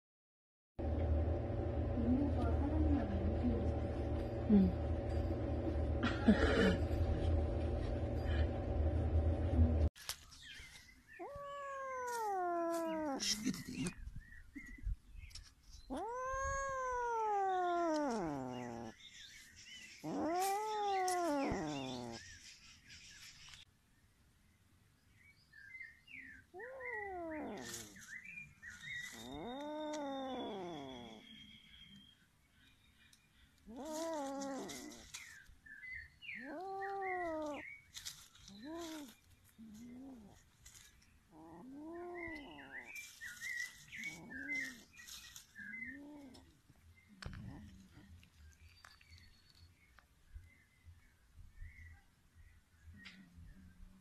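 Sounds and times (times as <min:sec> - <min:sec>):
small birds chirping: 0:10.1 - 0:54.0
kitten yowling: 0:11.2 - 0:13.5, 0:15.9 - 0:18.9, 0:20.0 - 0:22.2, 0:26.5 - 0:28.0, 0:29.0 - 0:31.2, 0:33.7 - 0:35.2, 0:36.4 - 0:37.6, 0:38.2 - 0:39.2, 0:41.3 - 0:42.9.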